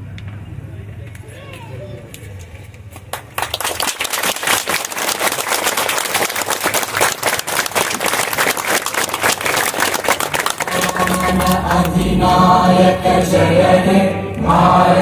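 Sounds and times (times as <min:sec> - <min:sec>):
crowd applauding: 0:03.0 - 0:12.6.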